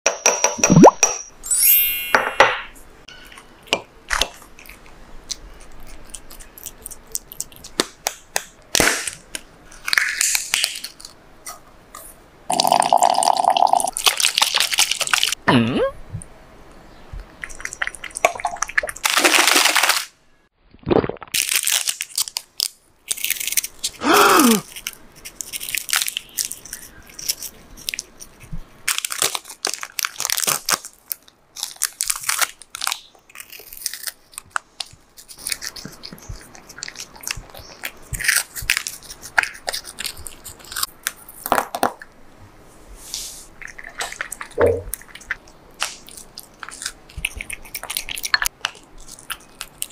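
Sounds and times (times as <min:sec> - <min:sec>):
plastic wrappers crinkling: 0:13.9 - 0:15.4, 0:18.9 - 0:20.1, 0:21.4 - 0:41.9.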